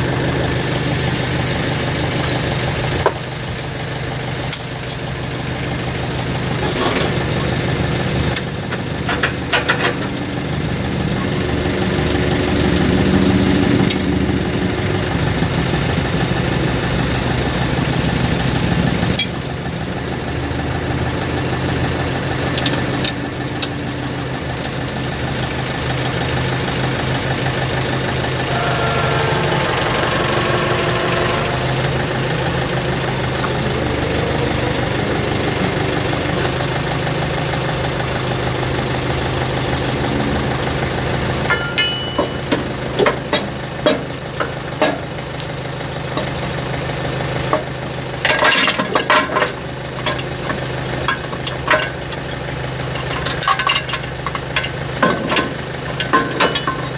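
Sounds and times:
diesel engine running: 0.0 - 56.9
metallic clanks: 18.7 - 21.5, 41.5 - 46.7, 47.5 - 56.9
wavering high tone: 28.4 - 31.8.

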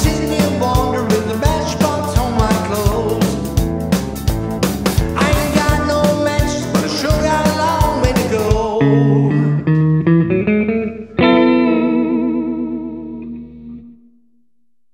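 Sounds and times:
drum beat: 0.0 - 8.7
guitar chords ringing: 0.0 - 14.6.

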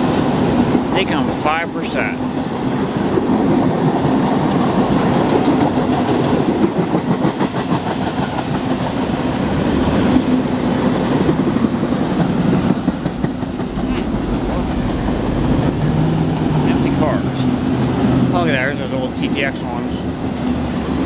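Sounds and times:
freight train rumbling past: 0.0 - 21.0
rapid wheel clicks on rail: 4.4 - 9.0.

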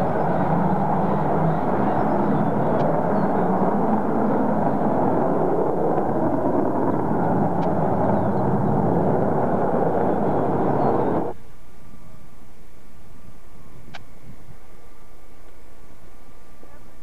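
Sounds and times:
loud jet noise: 0.0 - 11.4.

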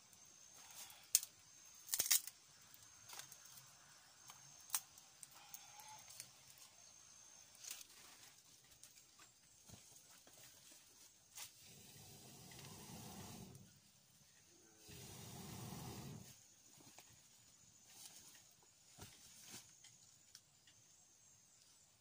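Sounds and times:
dry sticks crackling in fire: 1.9 - 5.4.

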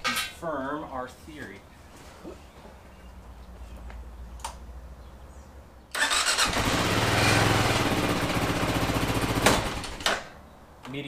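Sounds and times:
motorcycle engine running: 6.4 - 9.4.

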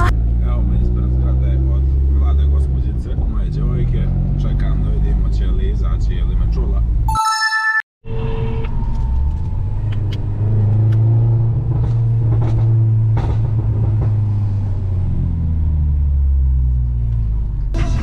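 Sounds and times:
road noise: 0.0 - 7.1, 8.0 - 18.0
car engine drone: 8.1 - 18.0.

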